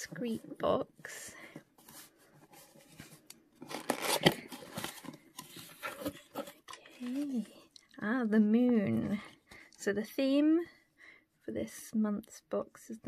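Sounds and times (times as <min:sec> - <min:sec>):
cardboard and paper tearing: 0:03.6 - 0:07.3.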